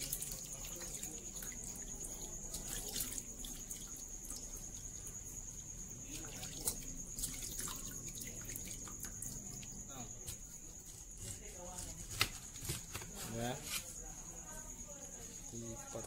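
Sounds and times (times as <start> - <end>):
water sloshing in metal bowl: 0.0 - 12.0.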